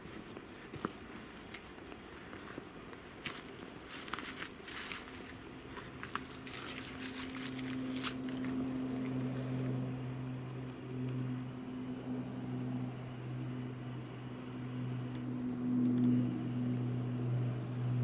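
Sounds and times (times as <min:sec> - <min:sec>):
footsteps crunching: 0:00.0 - 0:09.2
low engine drone: 0:00.0 - 0:18.0.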